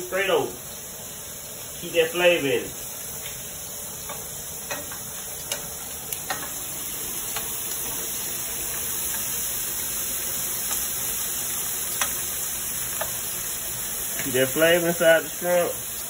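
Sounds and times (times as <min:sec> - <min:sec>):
shrimp sizzling in a skillet: 0:00.0 - 0:16.0
utensil clicking against pan: 0:04.0 - 0:06.6, 0:07.3 - 0:07.6, 0:11.9 - 0:12.2, 0:12.9 - 0:13.2.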